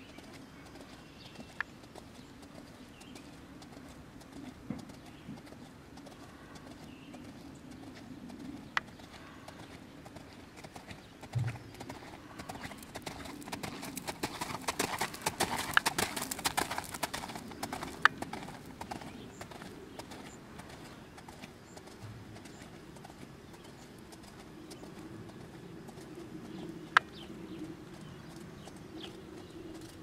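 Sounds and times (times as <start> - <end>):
horse hoofbeats on gravel: 8.8 - 25.0.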